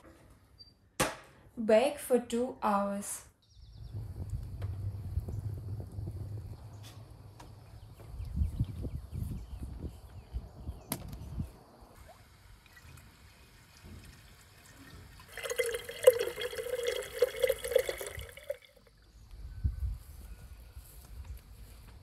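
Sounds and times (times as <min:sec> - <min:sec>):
low thumps: 0:03.8 - 0:08.9
water pouring into a clay jug: 0:12.0 - 0:19.0.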